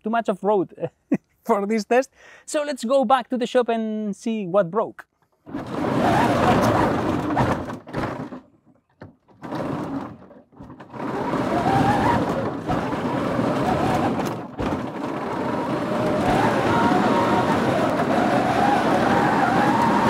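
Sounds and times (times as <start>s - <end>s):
tank tracks clattering and grinding: 5.5s - 20.0s.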